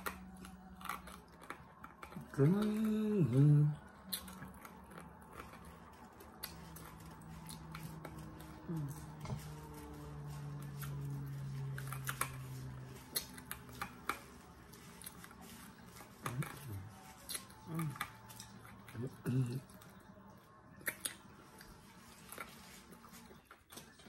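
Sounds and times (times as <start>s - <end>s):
person humming: 2.2s - 3.8s, 8.6s - 9.4s, 17.6s - 18.2s, 19.0s - 19.7s.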